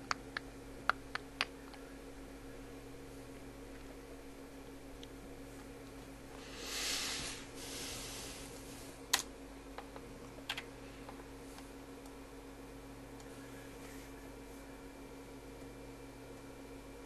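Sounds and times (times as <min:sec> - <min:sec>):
computer electrical hum: 0:00.0 - 0:17.0
soft hiss: 0:06.3 - 0:09.0.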